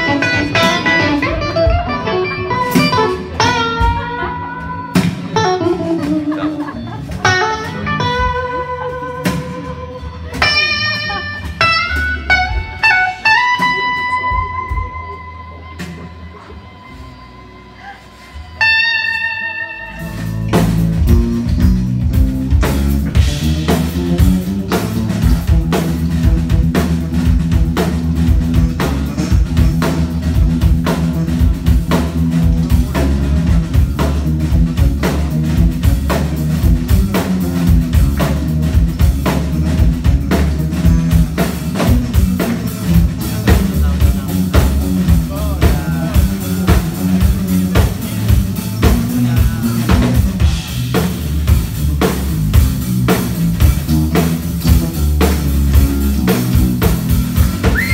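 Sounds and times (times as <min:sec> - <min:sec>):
drum kit groove: 0:00.0 - 0:17.1, 0:18.6 - 0:57.9
bass guitar: 0:00.0 - 0:57.9
electric guitar note ringing: 0:07.2 - 0:20.6.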